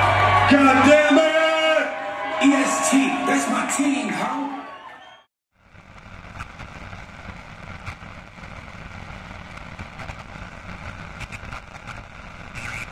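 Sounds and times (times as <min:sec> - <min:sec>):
faint crackles: 0:05.6 - 0:12.9.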